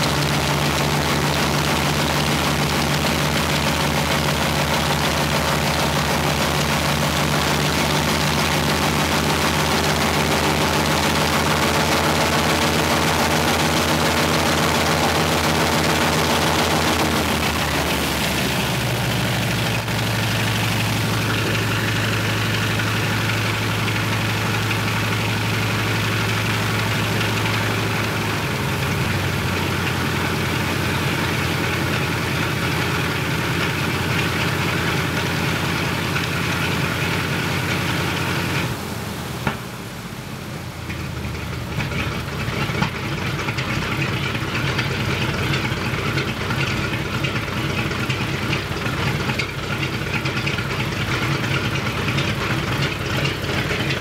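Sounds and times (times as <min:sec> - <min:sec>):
radial piston engine running: 0:00.0 - 0:38.6, 0:41.7 - 0:54.0
engine sharp pops: 0:39.4 - 0:39.8, 0:40.9 - 0:54.0.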